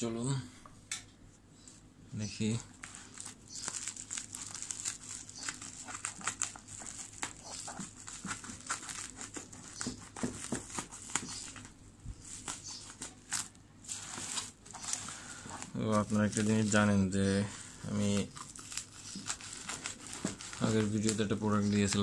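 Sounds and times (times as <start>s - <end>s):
bubble wrap crinkling: 2.6s - 22.0s.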